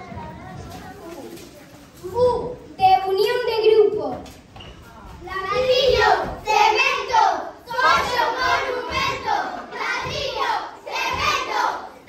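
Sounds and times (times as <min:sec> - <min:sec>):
children shouting: 0:05.4 - 0:12.0.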